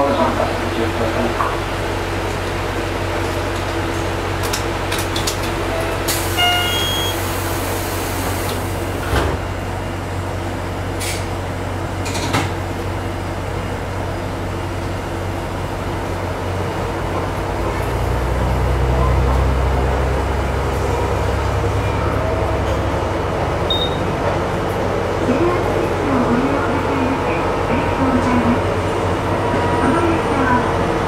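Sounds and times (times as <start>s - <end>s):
diesel railcar engine idling: 0.0s - 31.0s
short beep: 6.3s - 7.2s, 23.7s - 24.1s.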